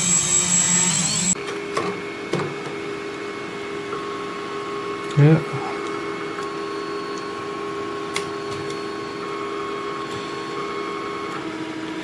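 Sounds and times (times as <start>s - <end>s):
three d printer motors humming: 0.0s - 12.0s.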